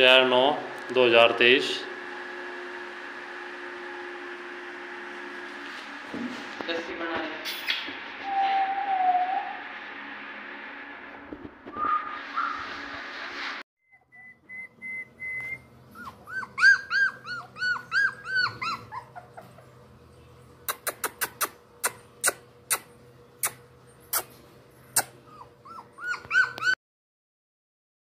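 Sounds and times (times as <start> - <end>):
puppy whimpering: 14.1 - 19.9, 20.7 - 26.8.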